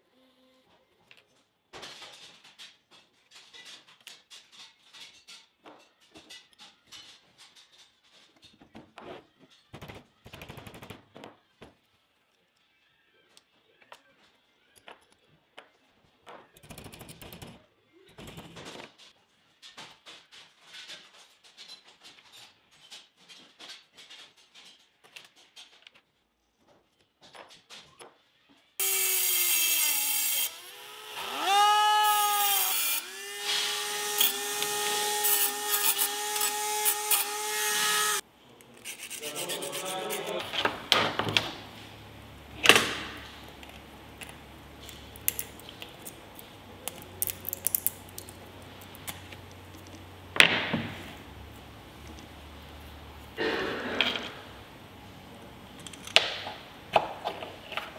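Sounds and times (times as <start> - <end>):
small power tool motor whine: 28.8 - 38.2.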